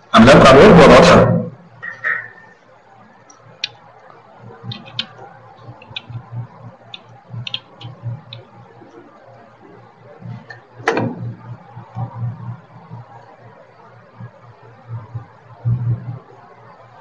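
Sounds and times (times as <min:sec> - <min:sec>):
faint low pulsing hum: 0:02.7 - 0:17.0
computer clicks: 0:04.6 - 0:08.6.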